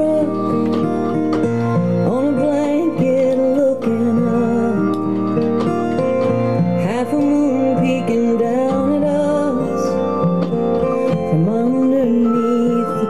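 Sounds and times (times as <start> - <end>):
woman singing country ballad: 0.0 - 0.9, 2.0 - 5.1, 6.7 - 10.2, 11.0 - 13.0.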